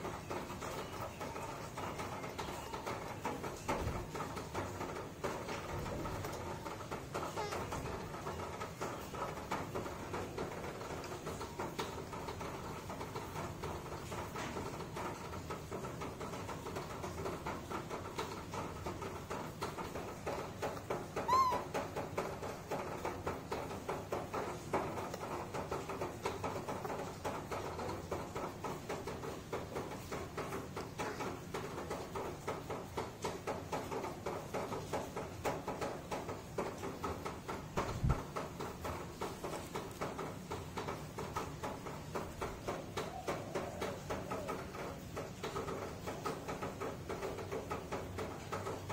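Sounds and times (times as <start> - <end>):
soft clicking and rustling: 0.0 - 48.9
baby monkey squeaking call: 21.2 - 21.7.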